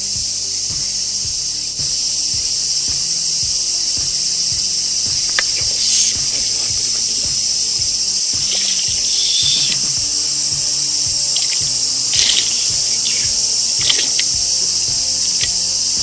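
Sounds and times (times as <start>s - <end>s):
insects droning: 0.0s - 16.0s
sharp click: 11.4s - 14.4s.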